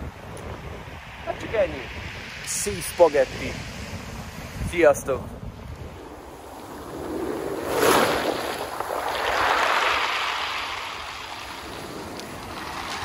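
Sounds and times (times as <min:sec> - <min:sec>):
waves washing on pebbles: 0:06.0 - 0:13.0.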